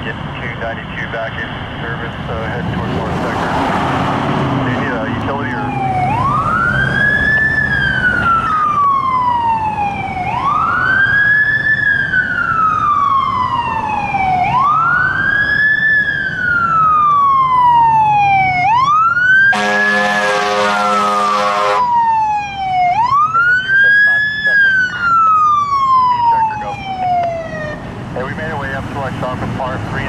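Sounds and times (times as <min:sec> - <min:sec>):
fire engine siren wailing: 0:00.3 - 0:30.0
horn blast: 0:19.5 - 0:21.9.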